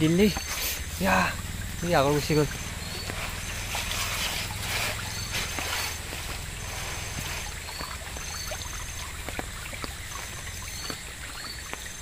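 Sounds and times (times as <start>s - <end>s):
water trickling and dripping: 0.0s - 12.0s.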